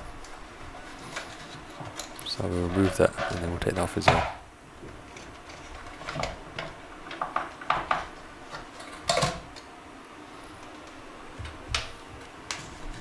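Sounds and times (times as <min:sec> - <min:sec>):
plastic shower unit clicks and knocks: 0:05.5 - 0:09.7.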